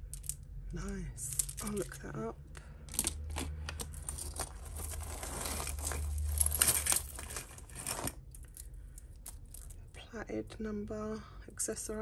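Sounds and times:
jewellery chains rustling and clinking: 0.0s - 2.3s, 2.9s - 9.8s.

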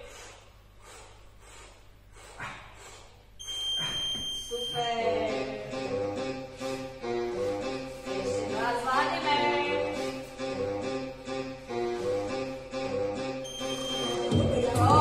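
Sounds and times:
workout music with steady beat: 2.3s - 15.0s
long high electronic beep: 3.4s - 4.9s, 13.4s - 14.5s.

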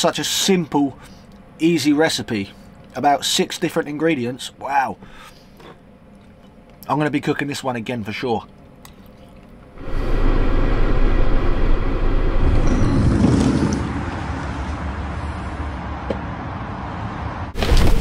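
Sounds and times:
traffic rumble: 9.6s - 18.0s.

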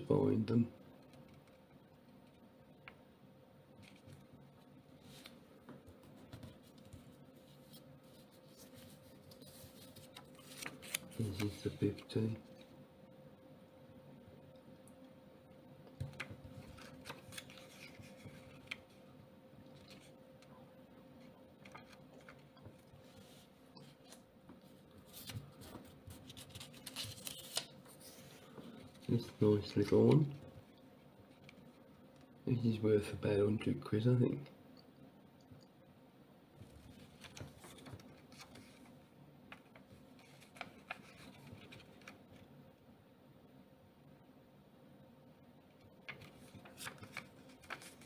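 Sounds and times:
faint steady hum: 0.0s - 48.0s
paper banknote rustling: 6.4s - 12.0s, 16.2s - 19.0s, 25.0s - 30.3s, 46.1s - 48.0s.

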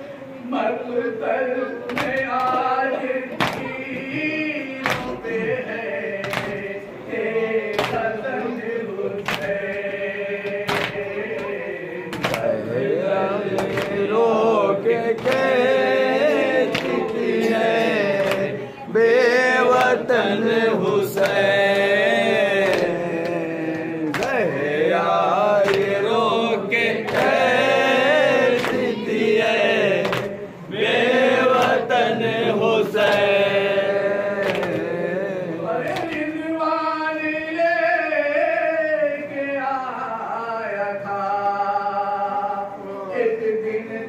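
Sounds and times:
men chanting in chorus: 0.4s - 44.0s
rhythmic chest-beating slaps: 1.8s - 18.6s, 19.6s - 36.4s.

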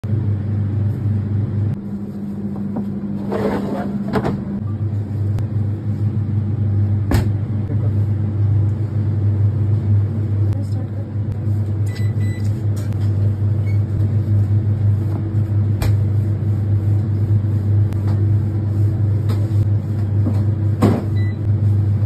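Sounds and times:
kitchen machinery hum: 0.0s - 22.0s
rustling scrape: 3.1s - 4.1s.

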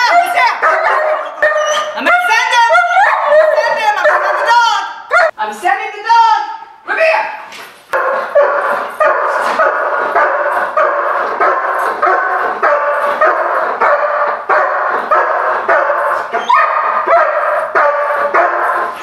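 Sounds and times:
dog barking: 0.0s - 5.3s, 8.0s - 19.0s.

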